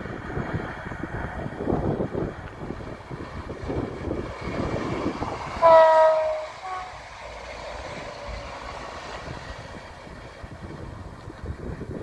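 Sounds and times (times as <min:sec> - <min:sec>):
train engine and wheel rumble: 0:00.0 - 0:12.0
train horn: 0:05.6 - 0:07.0.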